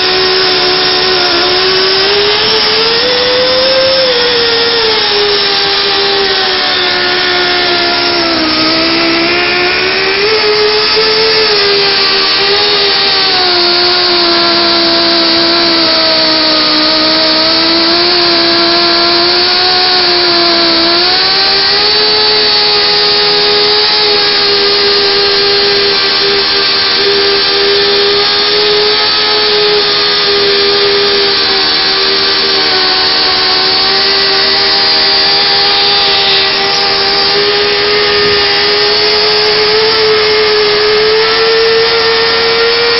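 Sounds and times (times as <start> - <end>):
pipe-beveling machine whining: 0.0 - 42.9.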